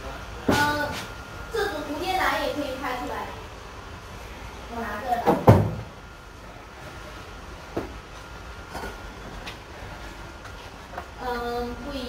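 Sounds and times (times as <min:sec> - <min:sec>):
low background noise: 0:00.0 - 0:12.0
loud thump: 0:05.3 - 0:05.9.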